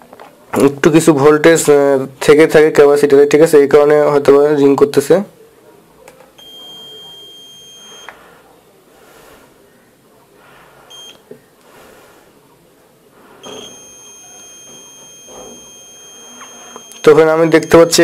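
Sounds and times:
multimeter continuity beep: 0:06.4 - 0:08.3, 0:10.9 - 0:11.4, 0:13.4 - 0:18.0.

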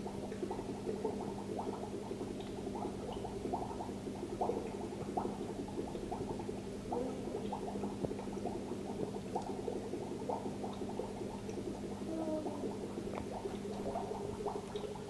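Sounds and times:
low filter hum: 0:00.0 - 0:15.0
water bubbling and gurgling: 0:00.0 - 0:15.0.

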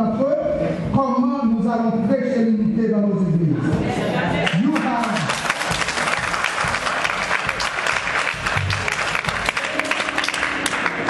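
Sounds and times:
crowd applauding: 0:04.4 - 0:11.0.

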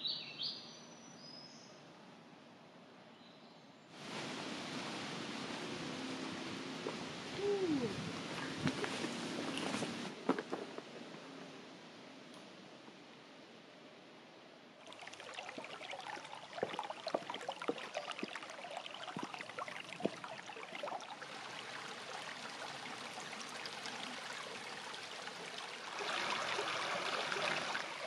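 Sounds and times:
water trickling and splashing: 0:04.0 - 0:11.0, 0:14.8 - 0:28.0
sharp water drips: 0:14.8 - 0:28.0.

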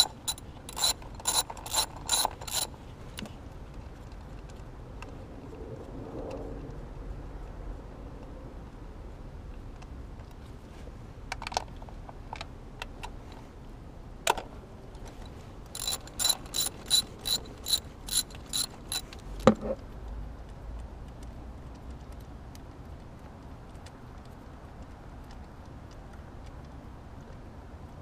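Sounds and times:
ratchet clicking: 0:00.0 - 0:03.3, 0:15.7 - 0:19.2.

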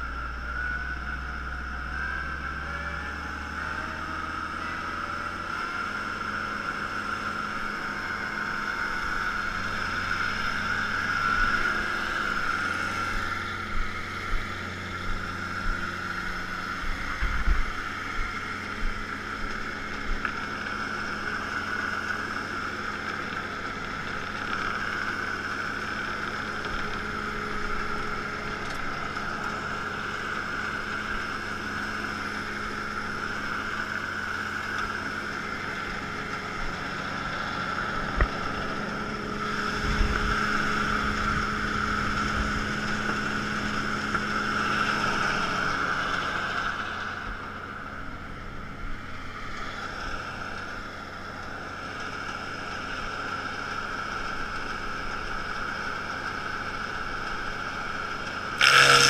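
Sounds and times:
chipper high whirr: 0:00.0 - 0:59.0
tractor diesel engine running: 0:00.0 - 0:59.0.

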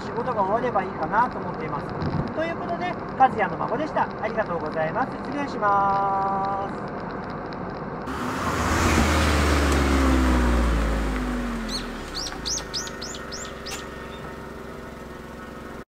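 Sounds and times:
car engine driving past: 0:08.1 - 0:15.8
bird chirping: 0:11.4 - 0:15.6.

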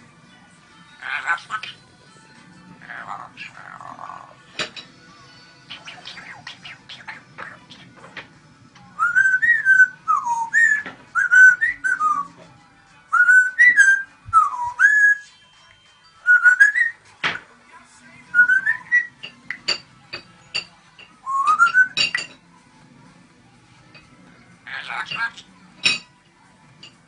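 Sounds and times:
parrot whistling: 0:05.7 - 0:07.9, 0:09.0 - 0:12.4, 0:13.2 - 0:15.5, 0:16.2 - 0:17.0, 0:18.3 - 0:19.3, 0:21.2 - 0:22.2.

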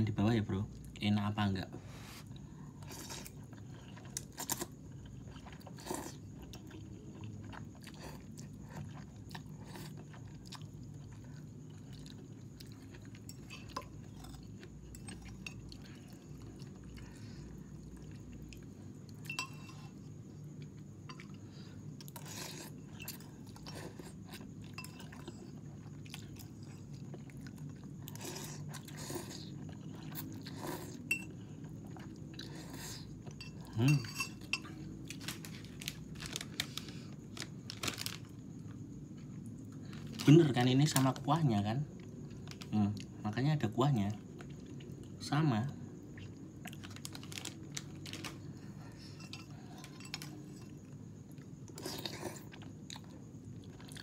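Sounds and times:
steady low hum: 0:00.0 - 0:54.0
person chewing and slurping noodles: 0:02.0 - 0:40.3, 0:45.9 - 0:54.0
cutlery clinking on ceramic bowl: 0:19.2 - 0:19.9, 0:33.4 - 0:34.7.

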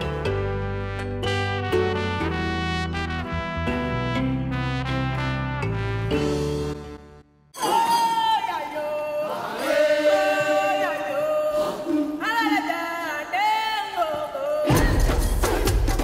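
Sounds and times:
group of voices chanting and singing: 0:07.6 - 0:16.0.

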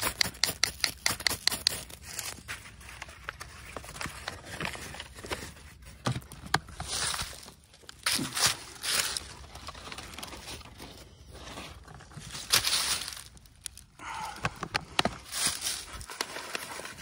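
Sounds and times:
paper bag crinkling: 0:06.7 - 0:14.0, 0:15.2 - 0:17.0.

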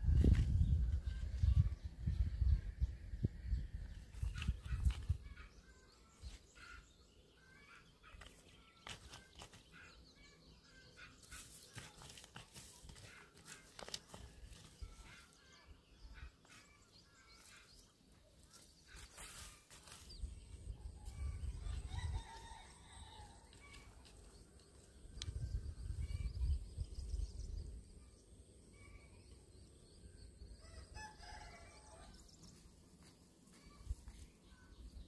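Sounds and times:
rooster crowing: 0:21.9 - 0:23.4, 0:30.6 - 0:32.2.

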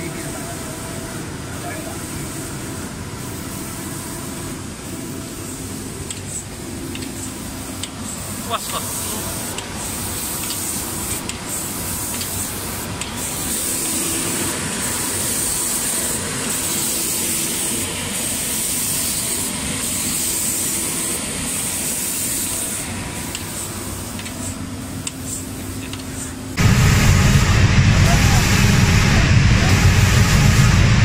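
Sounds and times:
compressed-air spray hiss: 0:01.8 - 0:26.5
low machine hum: 0:26.4 - 0:31.0.

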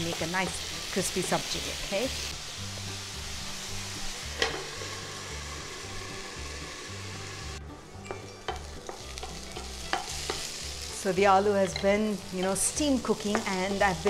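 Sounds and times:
potatoes sizzling in hot oil: 0:00.0 - 0:07.6, 0:08.4 - 0:14.0
spatula tapping and scraping pan: 0:08.1 - 0:10.6.

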